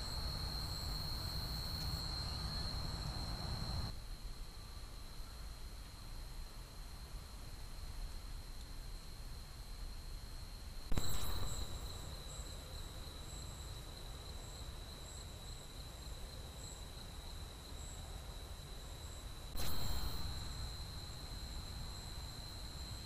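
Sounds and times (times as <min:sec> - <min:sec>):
insects whining: 0:00.0 - 0:03.9, 0:10.9 - 0:23.0
pulsing insect chirp: 0:00.0 - 0:04.7, 0:10.4 - 0:23.0.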